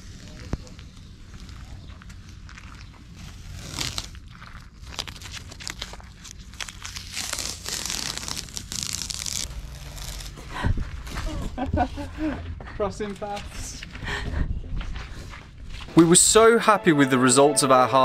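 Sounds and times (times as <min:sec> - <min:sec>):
masking tape ripping off: 0:03.1 - 0:11.5.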